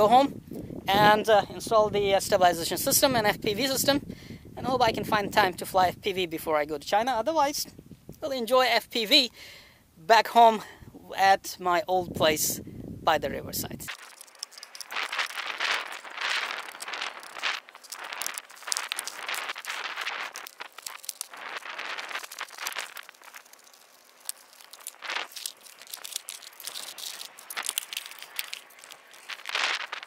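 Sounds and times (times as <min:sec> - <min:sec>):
foam rustling and crinkling: 0:13.6 - 0:30.0.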